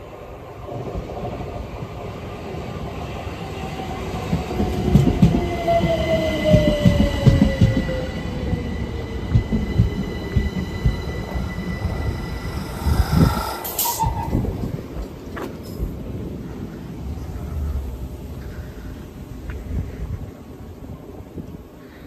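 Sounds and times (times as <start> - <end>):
electric train whine: 2.6 - 19.4
train wheels thudding on rails: 4.3 - 8.0
high squeal: 11.1 - 14.6.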